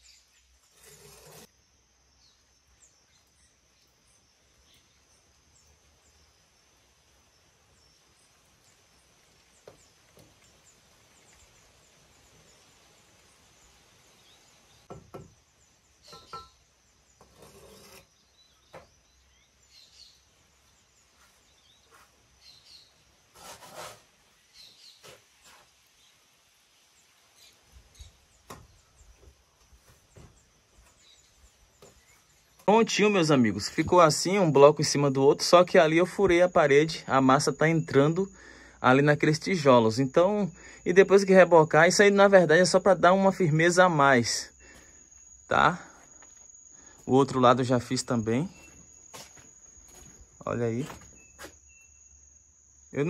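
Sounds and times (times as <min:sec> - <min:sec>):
trowel scraping and bricks knocking: 0:00.4 - 0:01.5, 0:16.0 - 0:19.0, 0:23.3 - 0:24.1.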